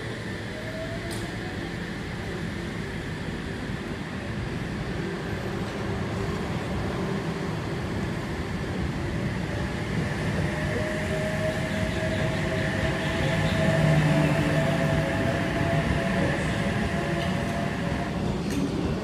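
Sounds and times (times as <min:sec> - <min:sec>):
electric train rumbling: 0:00.0 - 0:19.0.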